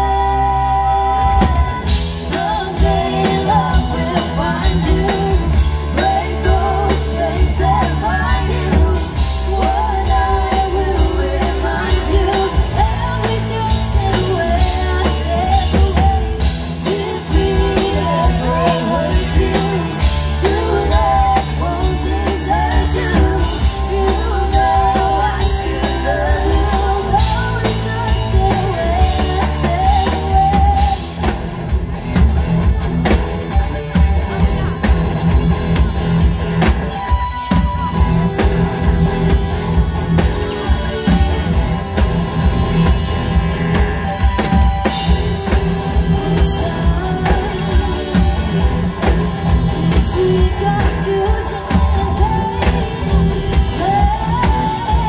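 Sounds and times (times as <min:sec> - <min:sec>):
women singing lead: 0:00.0 - 0:31.4, 0:44.1 - 0:55.0
live rock band playing: 0:00.0 - 0:55.0.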